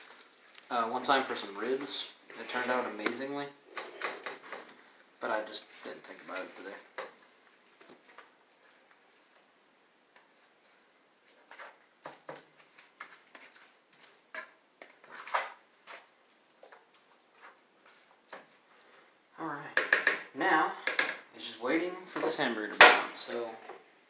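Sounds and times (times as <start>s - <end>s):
spatula scraping and tapping skillet: 10.1s - 19.0s, 19.8s - 21.2s.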